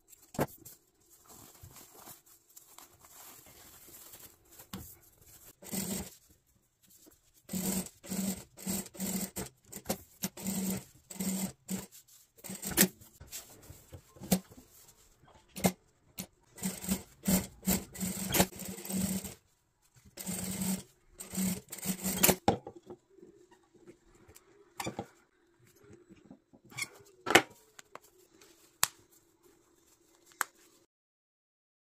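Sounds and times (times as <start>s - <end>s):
sewing machine stitching: 5.6s - 6.1s, 7.5s - 13.0s, 16.6s - 19.4s, 20.2s - 22.4s.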